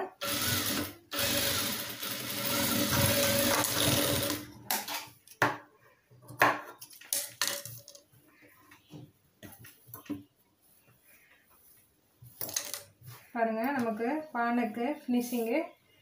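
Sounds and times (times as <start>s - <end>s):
sewing machine stitching: 0.2s - 4.5s.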